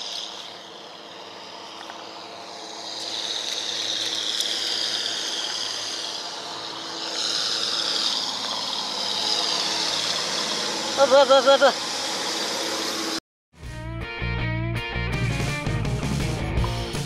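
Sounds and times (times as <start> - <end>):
boat engine and water rushing: 0.0 - 13.2
faint low engine hum: 0.0 - 13.2.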